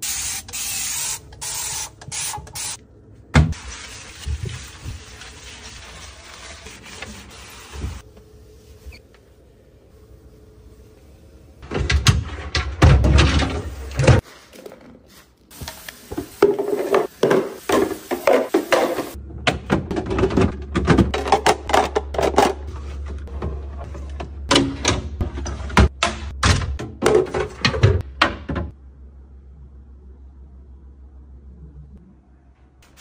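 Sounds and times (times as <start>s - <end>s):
sponge scrubbing glass shelf: 3.6s - 9.0s.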